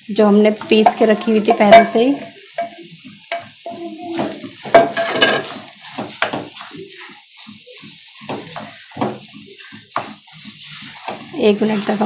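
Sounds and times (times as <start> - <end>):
paste sizzling in hot oil: 0.0 - 12.0
scraping in pan: 0.6 - 12.0
sharp knocks on pan: 4.2 - 6.6.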